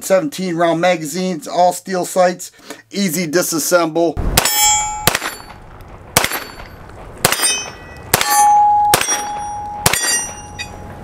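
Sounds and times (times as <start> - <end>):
steel target plate ringing: 4.4 - 5.6, 6.2 - 11.0
pistol shots: 4.4 - 10.4.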